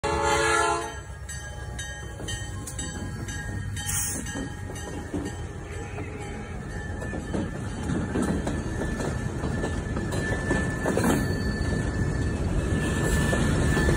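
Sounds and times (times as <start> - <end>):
locomotive air horn: 0.0 - 1.1
locomotive engines rumbling: 0.0 - 13.9
train wheels on rails: 0.2 - 13.9.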